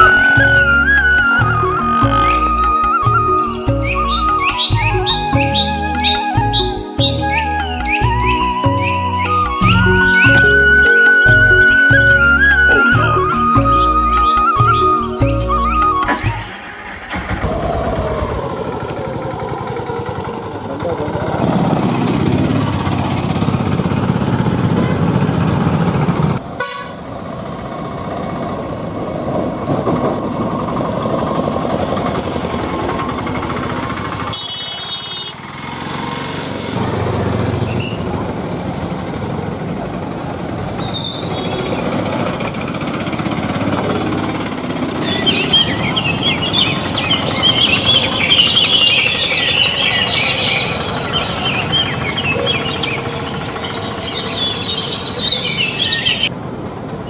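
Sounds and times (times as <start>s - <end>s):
vehicle engine running: 0.0s - 26.5s, 27.1s - 57.0s
chirping: 45.0s - 56.3s.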